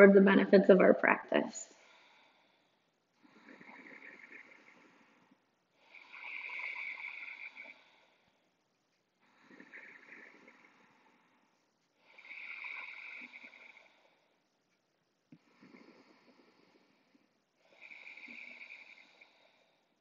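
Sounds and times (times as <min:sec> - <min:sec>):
person breathing slowly: 0:01.6 - 0:14.6, 0:15.3 - 0:20.0.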